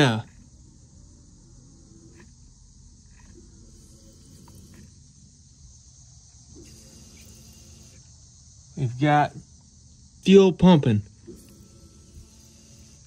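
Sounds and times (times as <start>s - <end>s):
electric fuel pump running: 0.0s - 13.0s
steady high hiss: 0.0s - 13.0s.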